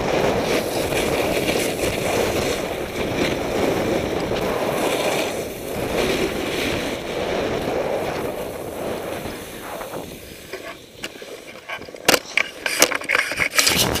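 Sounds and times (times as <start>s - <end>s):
snowboard scraping over snow: 0.0s - 14.0s
wind on microphone: 0.0s - 14.0s.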